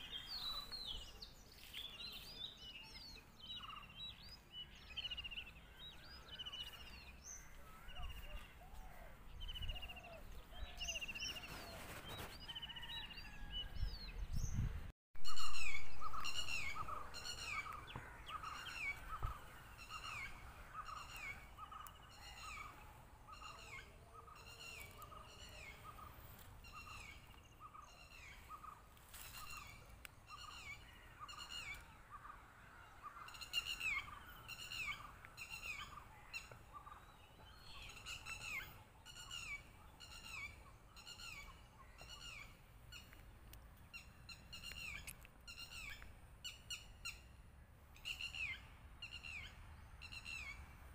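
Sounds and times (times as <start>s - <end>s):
scattered bird calls: 0.0s - 50.9s
low wind rumble: 12.8s - 23.3s.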